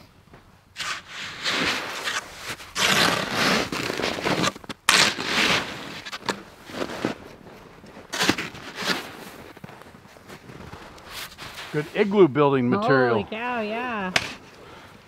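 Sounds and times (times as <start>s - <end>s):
shovel scraping snow: 0.8s - 12.3s.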